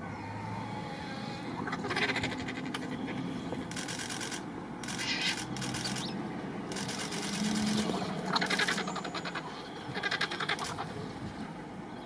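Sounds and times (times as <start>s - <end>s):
vultures hissing harshly: 4.8s - 6.1s, 6.7s - 10.9s.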